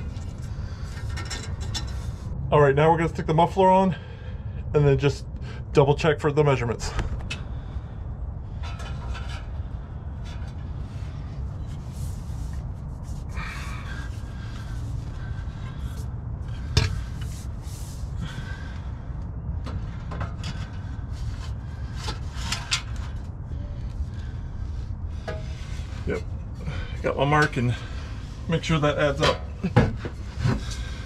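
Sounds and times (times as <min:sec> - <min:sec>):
metal muffler scraping and clunking: 0:00.0 - 0:02.3, 0:08.4 - 0:18.7, 0:19.6 - 0:24.3, 0:25.1 - 0:31.0
steady low rumble: 0:00.0 - 0:31.0.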